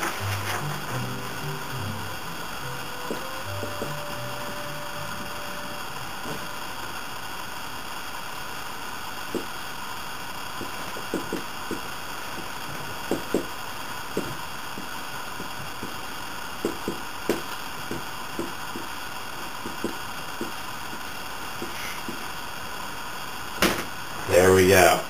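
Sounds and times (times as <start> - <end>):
recording hiss: 0.0 - 25.0
marker tapping on whiteboard: 10.6 - 11.8, 13.1 - 13.5, 16.6 - 18.9, 19.6 - 20.5.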